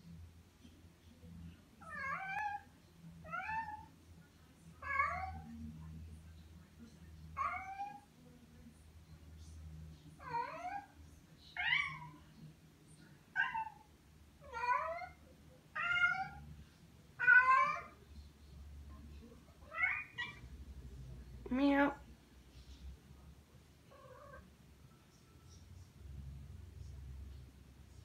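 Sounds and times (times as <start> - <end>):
cat meowing: 1.8 - 2.6, 7.4 - 8.0, 14.4 - 16.4, 17.2 - 18.0, 19.6 - 20.4.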